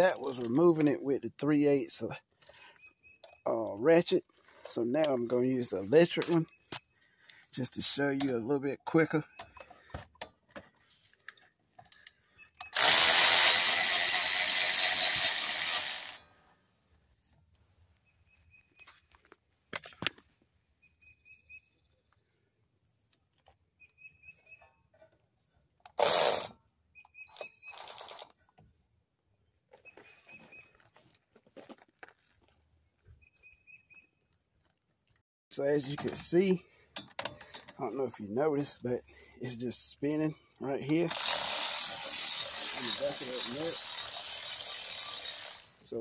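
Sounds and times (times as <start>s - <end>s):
electric ratchet running: 12.7s - 16.2s, 26.0s - 26.5s, 41.1s - 45.7s.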